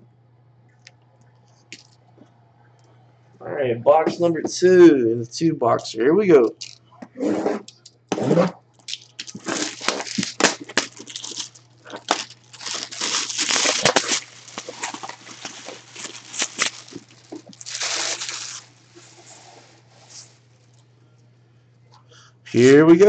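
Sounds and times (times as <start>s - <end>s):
faint low hum: 0.0s - 23.0s
plastic shrink-wrap tearing: 8.8s - 19.6s.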